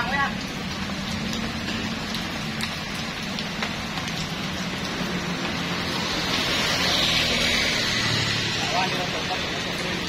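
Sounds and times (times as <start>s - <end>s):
heavy rain hissing: 0.0s - 10.0s
raindrop taps: 0.1s - 6.7s.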